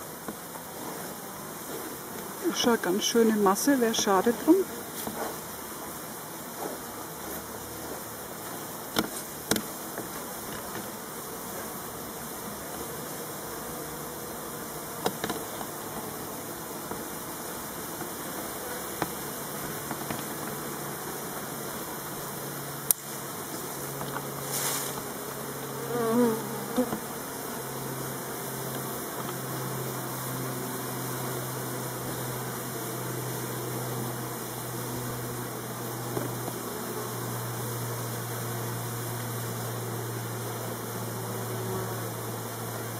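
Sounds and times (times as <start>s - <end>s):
honeybees buzzing: 0.0s - 42.9s.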